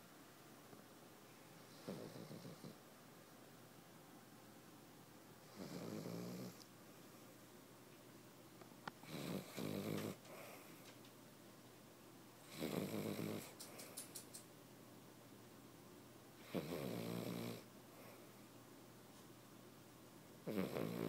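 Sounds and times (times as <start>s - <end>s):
dog snoring: 1.6s - 2.8s, 5.4s - 6.6s, 9.0s - 10.7s, 12.4s - 13.6s, 16.4s - 17.7s, 20.4s - 21.0s
soft clicks: 13.6s - 14.5s.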